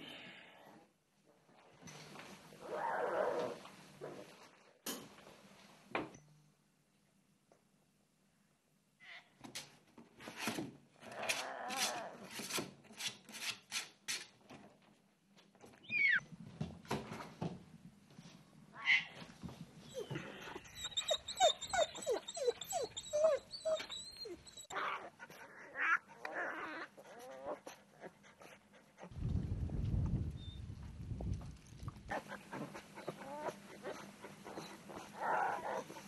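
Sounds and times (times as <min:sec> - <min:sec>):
young animals crying: 0:15.9 - 0:16.2, 0:19.9 - 0:27.6.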